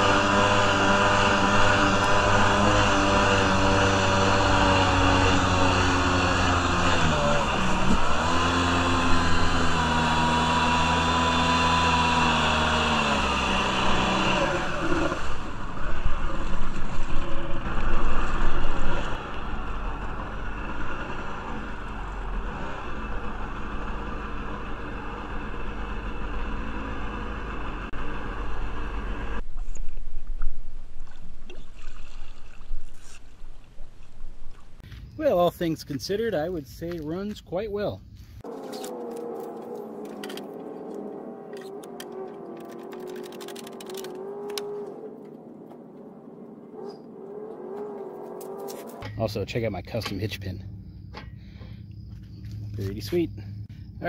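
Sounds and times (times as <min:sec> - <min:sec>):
jet ski engine running: 0:00.0 - 0:29.4, 0:38.4 - 0:49.1
water rushing under hull: 0:00.0 - 0:34.8.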